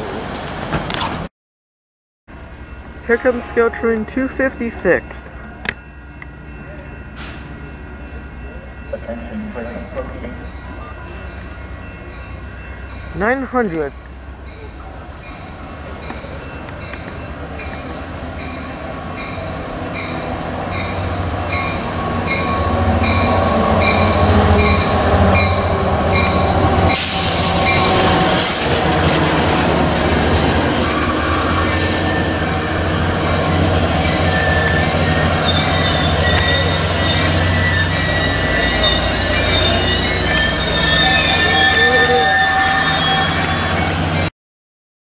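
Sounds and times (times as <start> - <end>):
train engine rumbling: 2.3 - 44.3
train bell ringing: 2.5 - 27.0, 29.7 - 44.3
wheels squealing on rails: 14.5 - 44.3.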